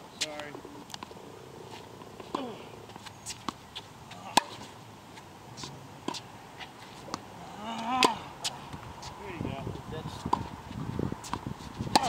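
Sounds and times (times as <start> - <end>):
tennis ball hits and bounces: 1.7 - 4.8, 5.6 - 8.8, 10.3 - 10.5, 11.2 - 12.0.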